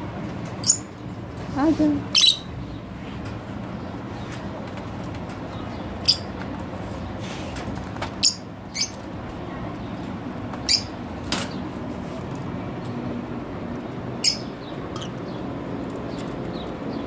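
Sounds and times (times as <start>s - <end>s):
lovebird chirping: 2.1s - 2.5s, 14.2s - 15.4s.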